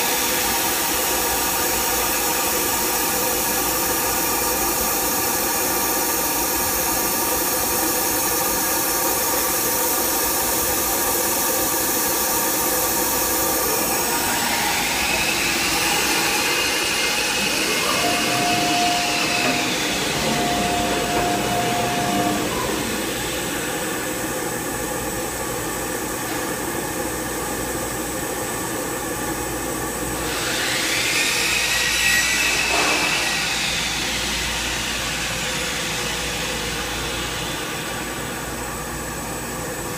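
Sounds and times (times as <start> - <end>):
machine hum: 12.5 - 26.0
rising machine whine: 12.7 - 25.1.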